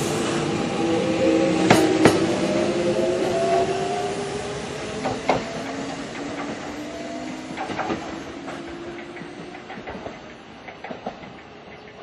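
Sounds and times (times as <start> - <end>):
electric train motor whine: 0.0 - 9.1
train wheels clacking: 5.0 - 12.0.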